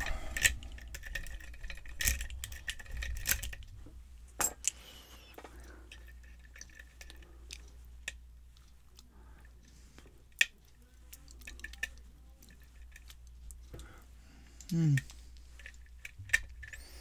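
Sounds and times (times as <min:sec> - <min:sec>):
lock pick clicking and scraping: 0:00.0 - 0:03.7, 0:05.4 - 0:08.7, 0:15.0 - 0:17.0.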